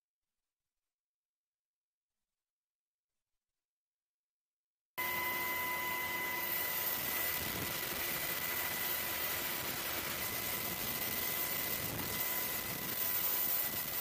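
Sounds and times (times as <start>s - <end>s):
constant high whine: 5.0s - 14.0s
helicopter rotors and engines rushing: 5.0s - 14.0s.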